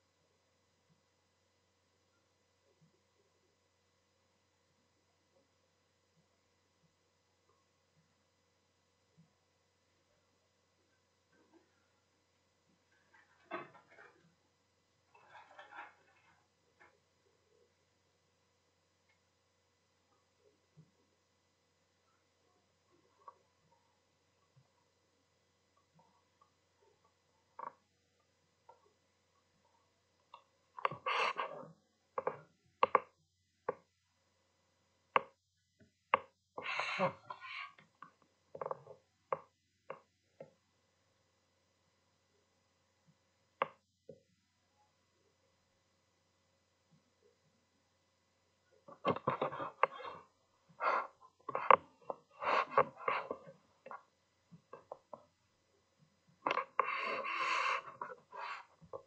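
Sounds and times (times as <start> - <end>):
scraping or rustling noise: 15.1 - 16.5.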